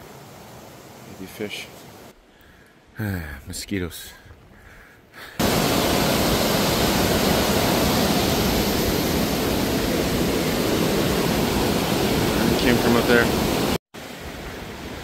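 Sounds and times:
creek water rushing: 0:00.0 - 0:02.2, 0:05.4 - 0:15.0.

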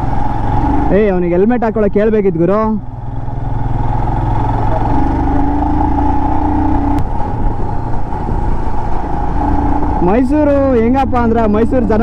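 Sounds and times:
motorcycle engine rumbling: 0:00.0 - 0:12.0
pitched whine: 0:02.8 - 0:12.0
wind noise: 0:06.8 - 0:10.2.

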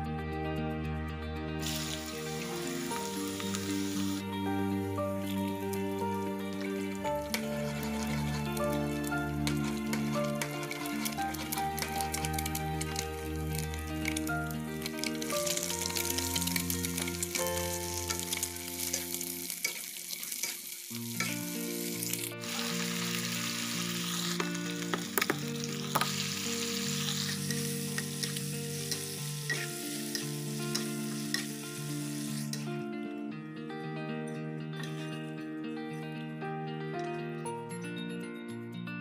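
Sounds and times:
background music: 0:00.0 - 0:20.1, 0:20.9 - 0:39.0
food sizzling in hot oil: 0:01.6 - 0:32.7.

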